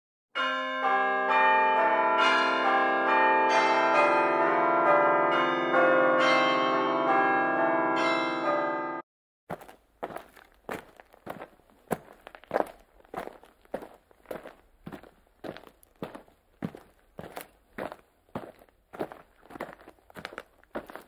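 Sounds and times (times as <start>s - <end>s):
bell chimes ringing: 0.4s - 9.0s.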